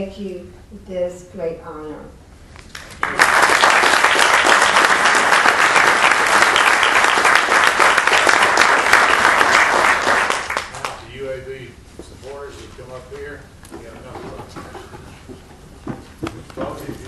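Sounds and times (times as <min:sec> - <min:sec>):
audience applauding: 0:02.7 - 0:11.2.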